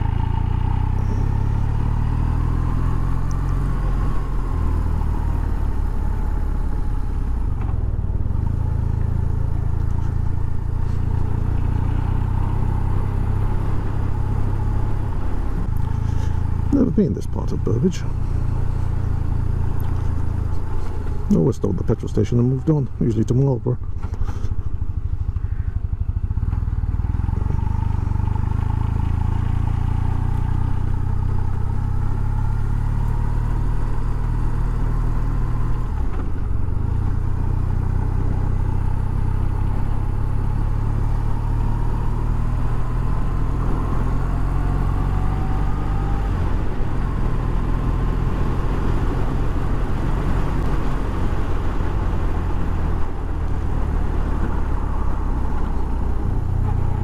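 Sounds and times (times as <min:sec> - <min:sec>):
motorcycle engine cruising: 0:00.0 - 0:57.0.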